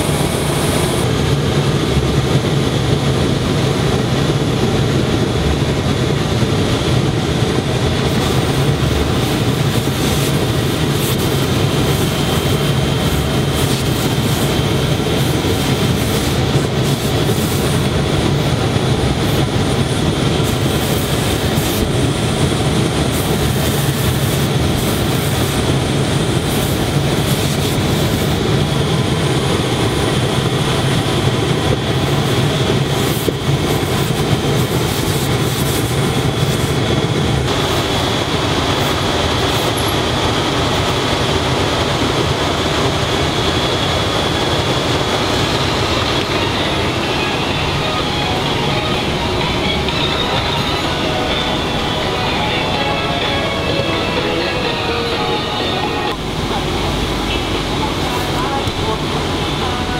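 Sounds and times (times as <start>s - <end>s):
factory machinery humming: 0.0s - 59.9s
thin high tone: 45.8s - 56.4s.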